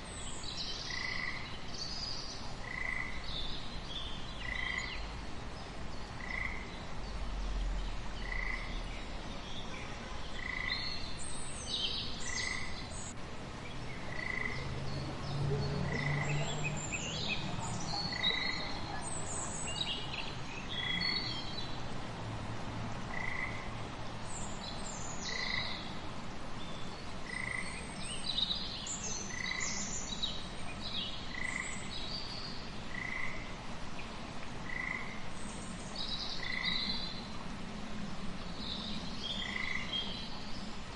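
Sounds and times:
frog chorus: 0.8s - 1.6s, 2.6s - 3.3s, 4.4s - 5.1s, 6.2s - 6.8s, 8.2s - 8.8s, 10.3s - 11.0s, 12.2s - 12.8s, 14.0s - 14.8s, 15.8s - 20.1s, 23.1s - 23.8s, 25.2s - 25.9s, 27.2s - 27.8s, 29.2s - 30.0s, 31.2s - 31.9s, 32.9s - 33.6s, 34.6s - 35.2s, 36.4s - 37.1s, 39.3s - 40.2s.

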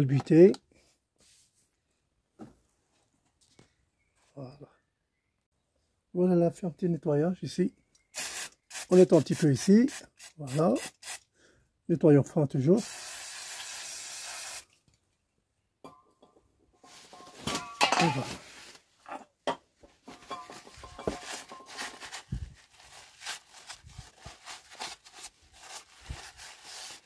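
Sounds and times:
aerosol spray hissing: 8.2s - 11.2s, 12.8s - 14.6s.

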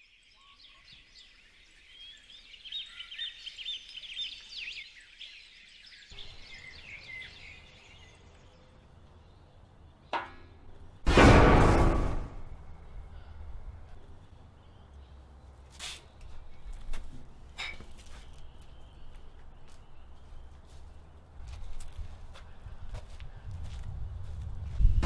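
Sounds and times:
birds chirping and singing: 0.0s - 11.0s, 17.9s - 21.6s
outdoor background: 0.0s - 25.0s.

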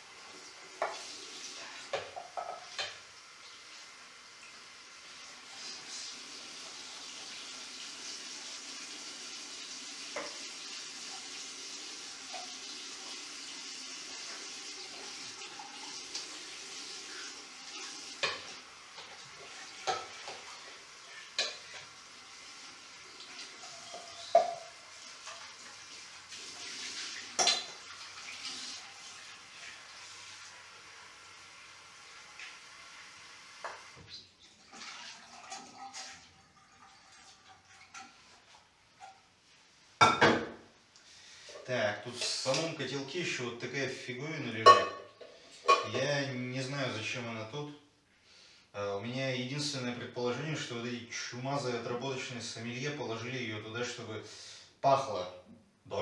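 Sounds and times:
tap water running into sink: 0.0s - 39.2s.

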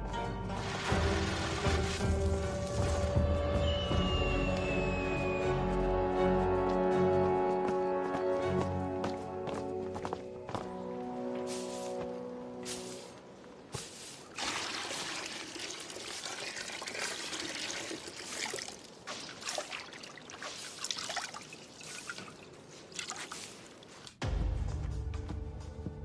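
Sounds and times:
music: 0.0s - 13.4s, 24.2s - 26.0s
water splashing in a washtub: 0.6s - 2.3s, 14.4s - 23.6s
hands scrubbing wet cloth: 14.0s - 24.2s.

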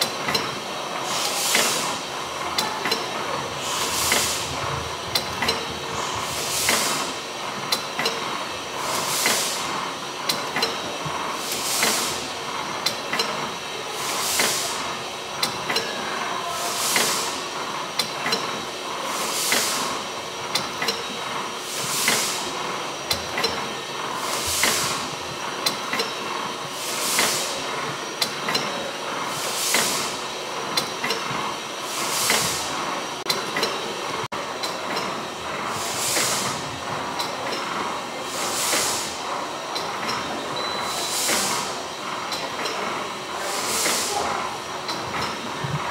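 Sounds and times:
steam engine hissing: 0.0s - 45.9s.

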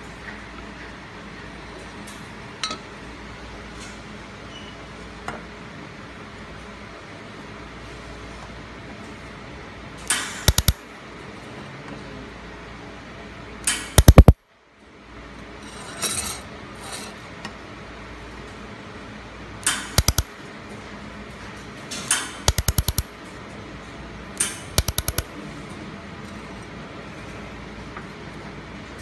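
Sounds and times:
laser welder sharp snaps: 10.4s - 10.8s, 13.7s - 14.4s, 19.7s - 20.3s, 22.5s - 23.1s, 24.4s - 25.3s.

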